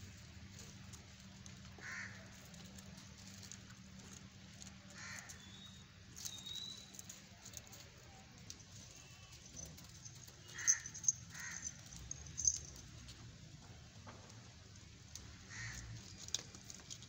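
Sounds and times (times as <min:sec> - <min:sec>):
thin whistle: 0:06.3 - 0:06.9.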